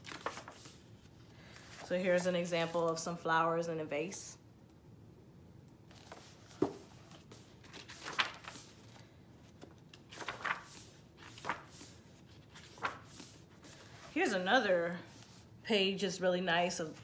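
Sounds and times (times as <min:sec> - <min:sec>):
book pages rustling: 0:00.0 - 0:03.0, 0:05.9 - 0:15.5.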